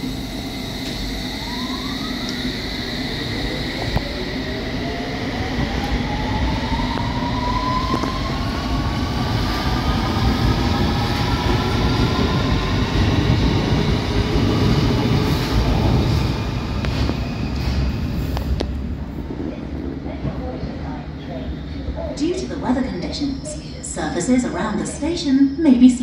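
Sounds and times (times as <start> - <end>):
train traction motors whining: 0.0 - 8.4.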